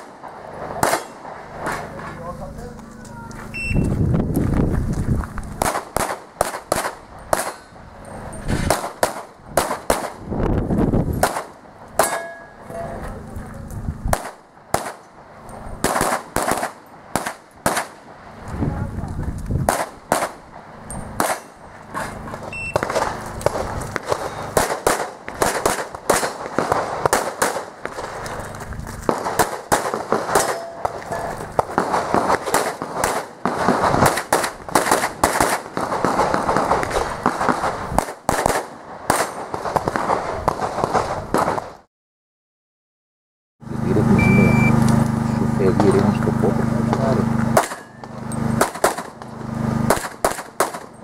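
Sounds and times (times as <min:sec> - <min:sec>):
steady low hum: 0:00.0 - 0:38.1, 0:43.6 - 0:51.0
handgun shots: 0:00.8 - 0:01.9, 0:05.6 - 0:07.7, 0:11.2 - 0:12.4, 0:15.8 - 0:18.0, 0:21.2 - 0:22.2, 0:29.1 - 0:33.3, 0:47.6 - 0:49.2, 0:49.9 - 0:51.0.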